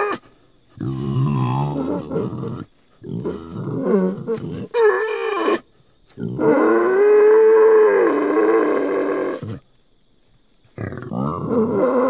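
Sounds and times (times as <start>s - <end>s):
wild boar calling: 0.0s - 9.7s, 10.8s - 12.0s.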